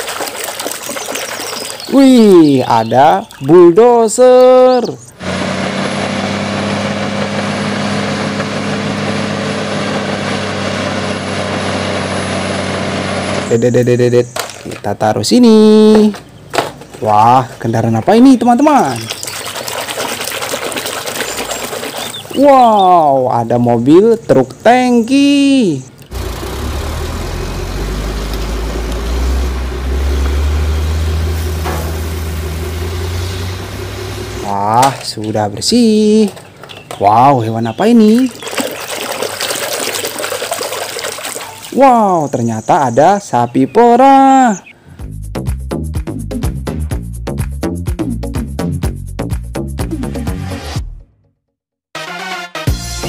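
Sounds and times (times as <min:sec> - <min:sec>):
bulldozer diesel engine drone: 0:05.1 - 0:13.9, 0:25.8 - 0:34.9.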